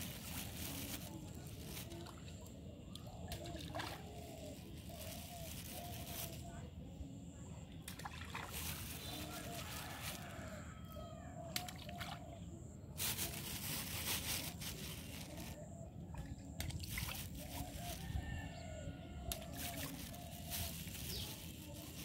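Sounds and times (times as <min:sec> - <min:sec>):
water sloshing and trickling: 0:00.0 - 0:06.4, 0:07.7 - 0:10.7, 0:11.5 - 0:22.0
water splashing: 0:07.9 - 0:09.5.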